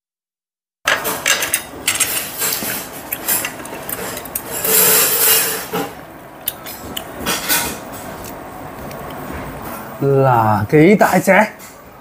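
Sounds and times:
chopsticks and spoon scraping shell: 1.0 - 9.8.

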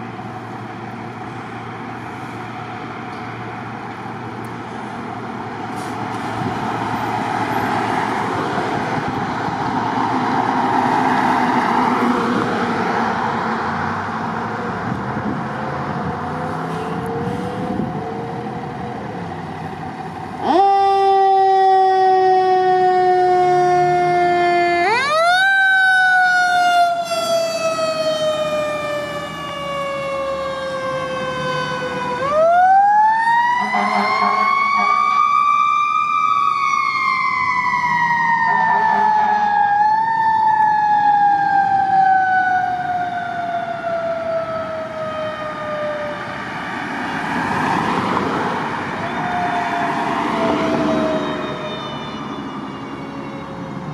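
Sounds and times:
air horn blasts: 33.6 - 35.2.

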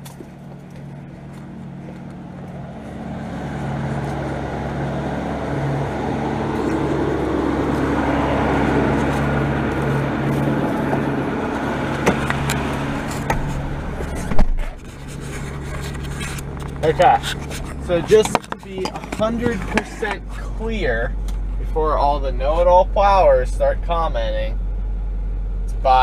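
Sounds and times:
truck engine idling: 0.0 - 26.0
cab door shutting: 11.8 - 14.8.

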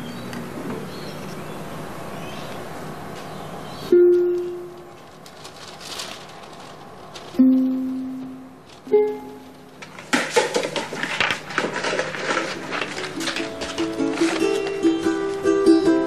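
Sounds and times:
plucked string notes: 3.9 - 4.9, 7.4 - 9.8, 13.3 - 16.0.

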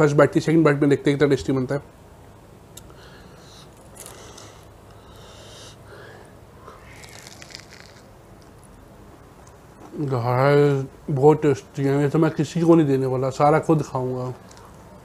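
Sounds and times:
breathing through the nose: 2.9 - 7.1
crunching and chewing crispy bread: 3.6 - 5.0, 6.8 - 8.8.

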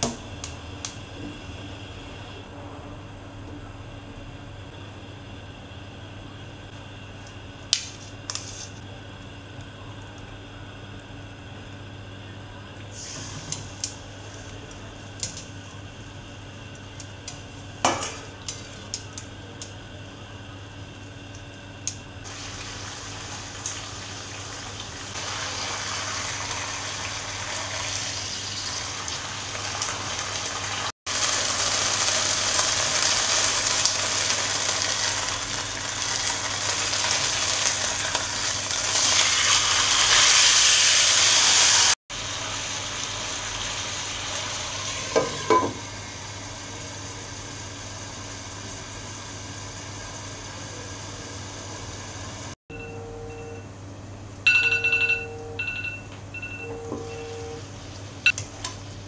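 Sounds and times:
chicken sizzling in a wok: 12.9 - 52.6.

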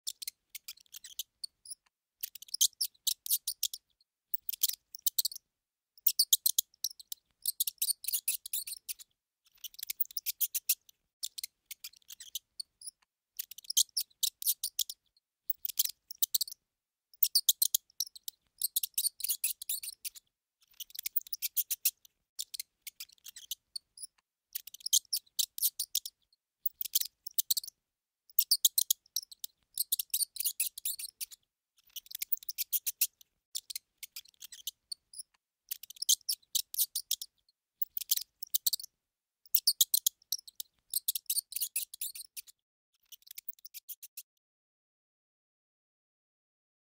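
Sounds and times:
mouse gnawing food: 0.0 - 5.4, 6.0 - 16.6, 28.3 - 38.9.

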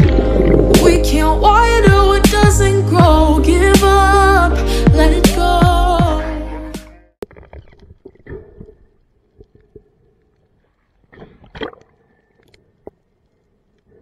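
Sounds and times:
gurgling splash: 0.0 - 1.4
faint underwater water movement: 0.0 - 1.8, 7.2 - 14.0
small clicks underwater: 7.2 - 14.0.

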